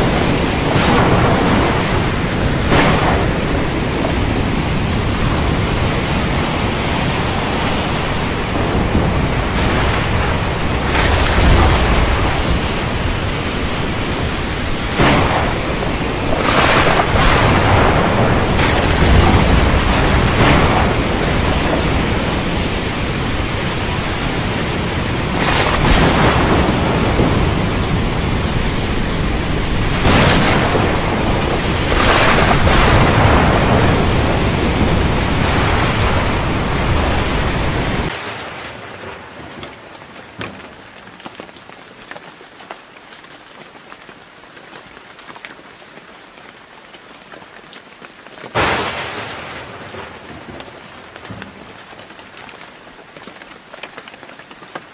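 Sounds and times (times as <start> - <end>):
sharp thunderclap: 0.0 - 6.4, 8.4 - 39.4, 48.6 - 51.3
thunder: 0.0 - 6.8, 7.4 - 39.9, 48.5 - 51.7
heavy rain: 0.0 - 54.9
pattering rain: 0.0 - 54.9.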